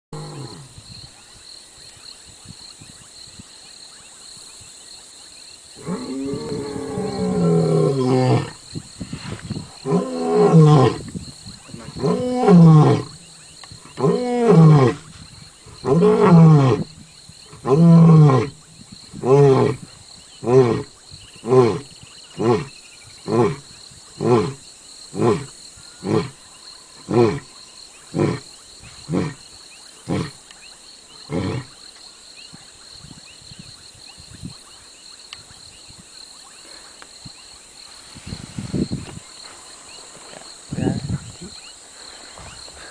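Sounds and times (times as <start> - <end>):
lion roaring and grunting: 5.8 - 8.6, 9.6 - 15.1, 15.8 - 26.4, 27.0 - 27.5, 28.1 - 29.4, 30.1 - 30.4, 31.2 - 31.7.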